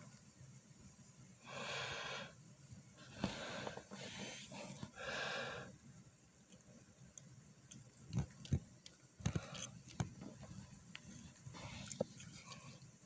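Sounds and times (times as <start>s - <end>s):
breathy hiss: 1.0s - 6.8s, 9.2s - 13.0s.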